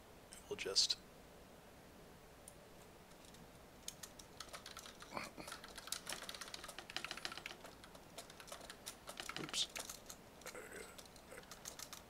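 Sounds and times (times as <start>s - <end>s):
keyboard typing: 3.1s - 12.0s.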